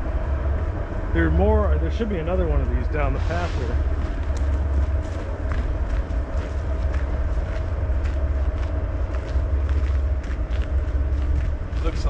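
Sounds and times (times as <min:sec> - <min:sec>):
wind buffeting microphone: 0:00.0 - 0:12.0
footsteps on gravel: 0:03.9 - 0:12.0.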